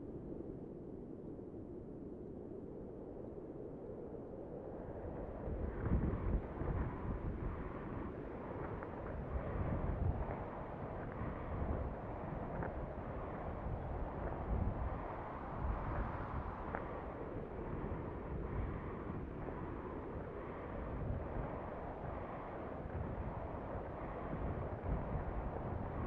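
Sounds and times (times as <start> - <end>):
wind buffeting microphone: 5.2 - 26.0.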